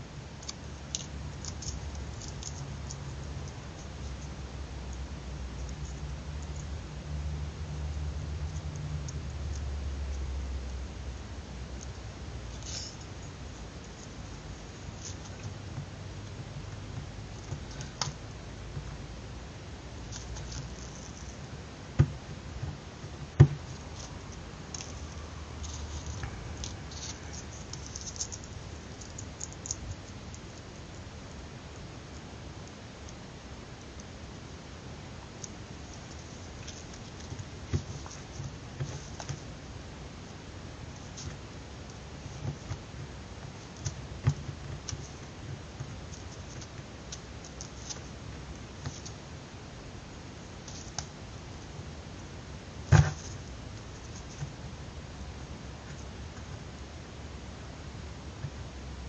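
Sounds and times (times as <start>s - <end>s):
small clicks and ticks: 0.4s - 6.8s, 23.7s - 34.2s.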